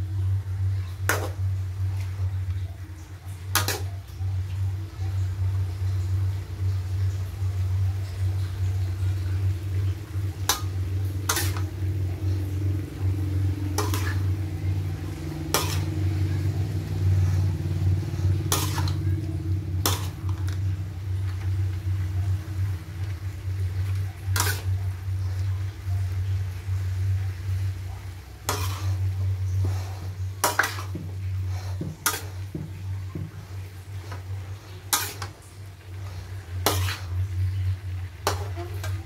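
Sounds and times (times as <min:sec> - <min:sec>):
steady low hum: 0:00.0 - 0:39.0.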